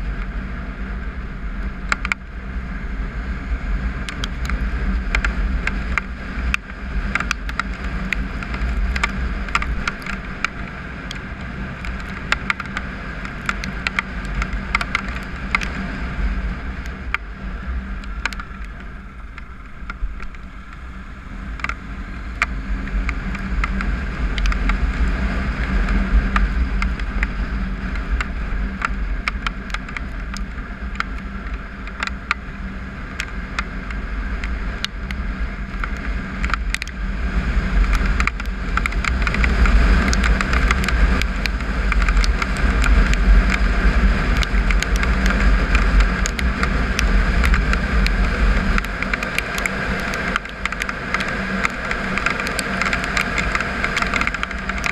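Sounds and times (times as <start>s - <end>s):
motorcycle engine running: 0.0s - 54.9s
wind rumble: 0.0s - 54.9s
sharp clicks: 1.9s - 2.2s, 4.0s - 15.8s, 18.0s - 20.8s, 21.6s - 21.8s, 22.4s - 24.8s, 25.6s - 32.4s, 37.8s - 54.9s.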